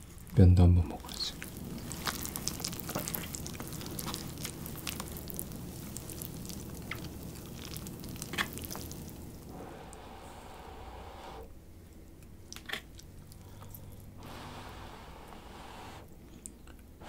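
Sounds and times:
noodles in broth wet crackle: 1.0s - 9.5s.

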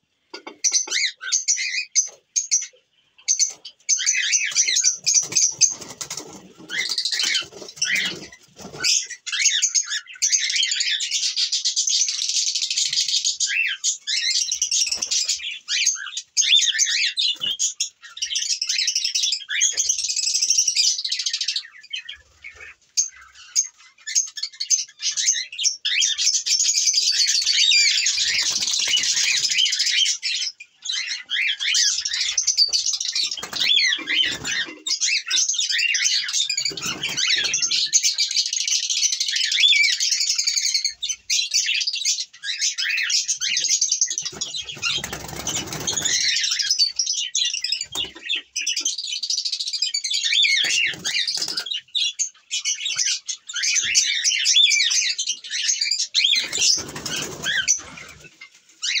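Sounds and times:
birds chirping and calling: 0.0s - 59.0s
wings flapping: 5.0s - 9.0s, 33.2s - 34.8s, 36.6s - 37.7s, 44.2s - 46.7s, 50.6s - 51.7s, 56.4s - 58.4s.

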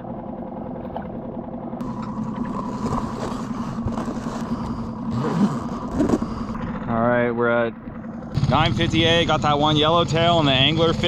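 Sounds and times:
outboard motor running: 0.0s - 11.0s.

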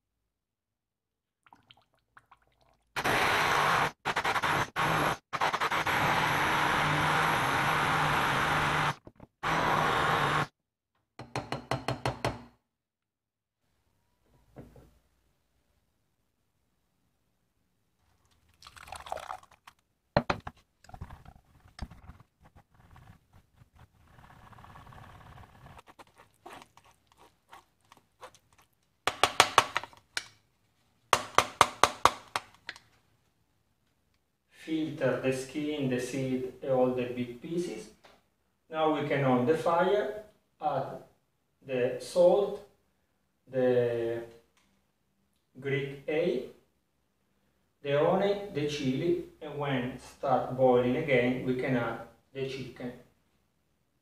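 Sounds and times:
stick blender running: 3.0s - 10.5s.

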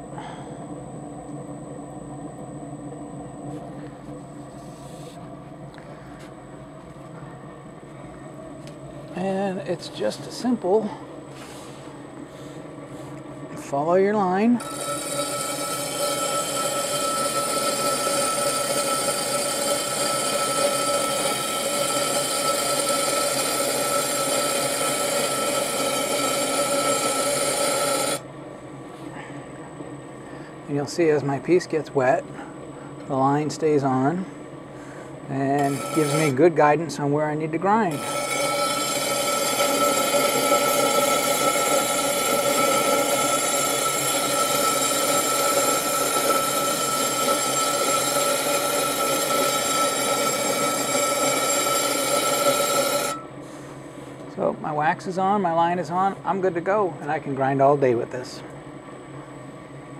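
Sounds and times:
glass grinding on lap wheel: 14.2s - 28.2s, 35.3s - 36.6s, 37.6s - 53.3s.

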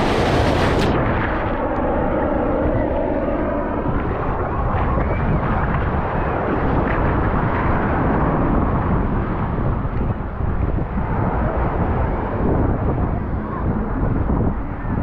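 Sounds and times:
surf washing on beach: 0.0s - 1.5s
wind buffeting microphone: 0.0s - 15.0s.

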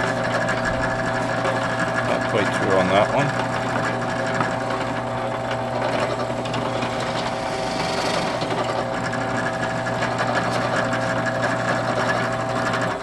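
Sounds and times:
drill bit boring through wood: 0.0s - 13.0s
drill press motor humming: 0.0s - 13.0s.

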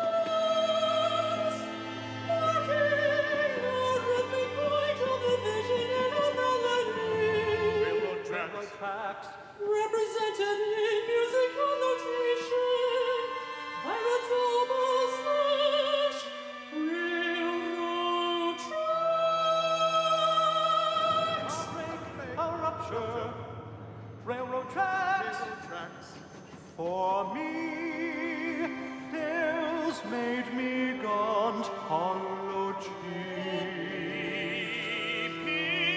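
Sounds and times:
operatic voice singing: 0.0s - 23.6s, 24.2s - 35.9s.

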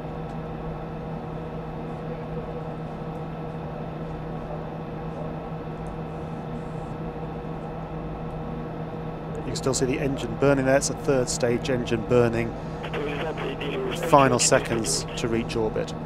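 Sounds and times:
cabin hum and hiss: 12.1s - 15.9s.

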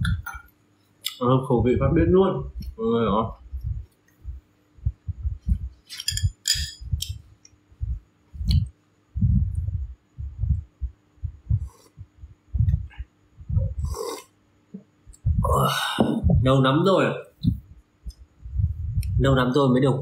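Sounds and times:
soft low thumps: 0.0s - 0.4s, 1.6s - 7.2s, 7.8s - 14.0s, 14.8s - 16.8s, 17.4s - 19.5s
person slurping soup: 13.8s - 14.3s.

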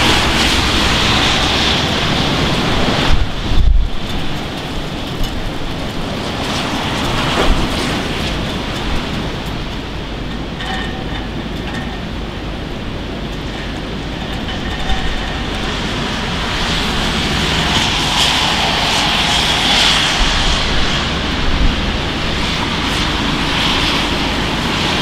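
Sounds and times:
train rumbling on tracks: 0.0s - 25.0s.

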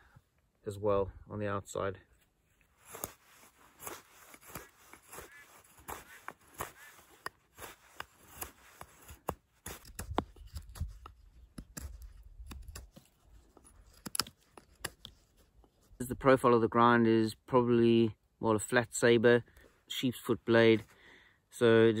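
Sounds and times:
knife shaving a wooden stick: 2.8s - 15.6s.

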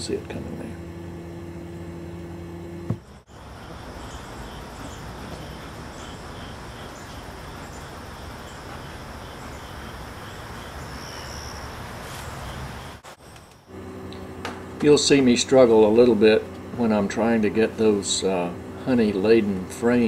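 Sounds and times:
low hum: 0.0s - 11.9s
insect chirping: 3.0s - 13.7s.

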